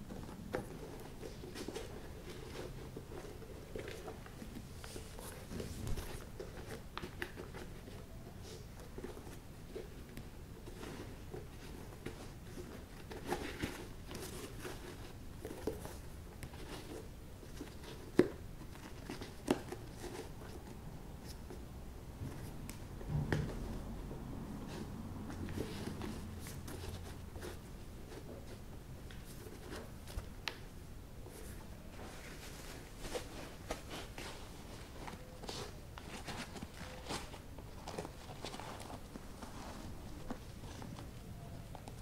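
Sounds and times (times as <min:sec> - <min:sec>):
shoelaces rustling and sliding: 0:00.0 - 0:42.0
soft thump: 0:23.0 - 0:23.7.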